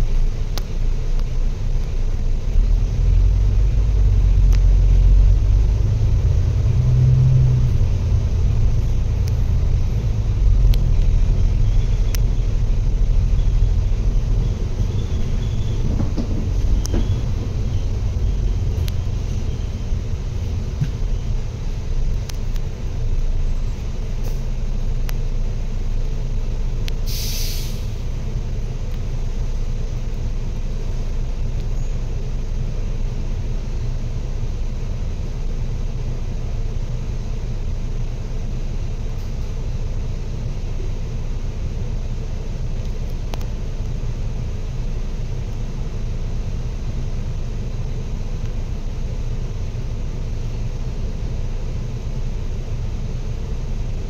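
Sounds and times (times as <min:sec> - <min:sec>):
vehicle rumble: 0:00.0 - 0:54.0
short sharp hiss: 0:27.0 - 0:28.1.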